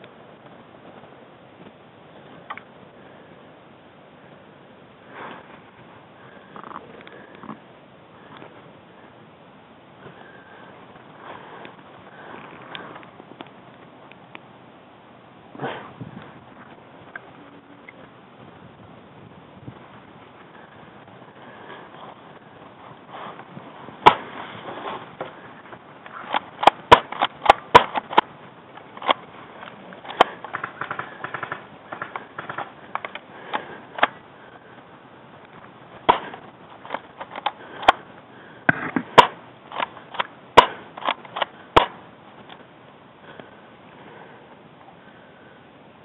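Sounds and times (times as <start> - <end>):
airsoft guns firing pops: 24.0 - 24.3, 26.1 - 28.3, 36.0 - 38.0, 38.7 - 42.0.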